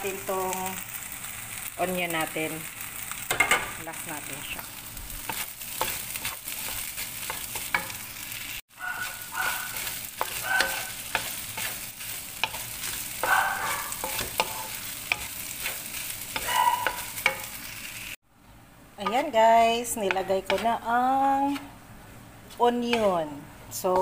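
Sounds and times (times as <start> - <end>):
rice sizzling in a wok: 0.0 - 18.2
spatula scraping and knocking pan: 5.2 - 8.0, 9.0 - 17.6, 19.0 - 20.8.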